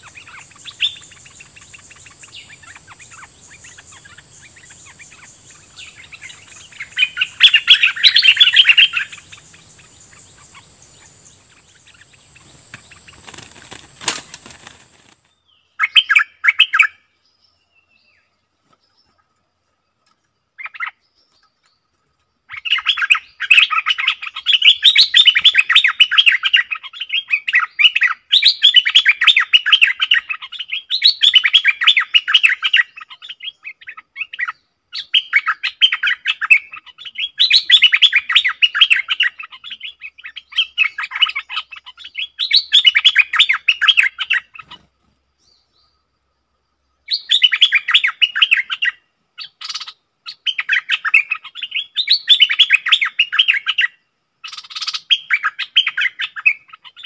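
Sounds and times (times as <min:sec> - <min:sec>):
bulbul singing: 0:00.0 - 0:18.1.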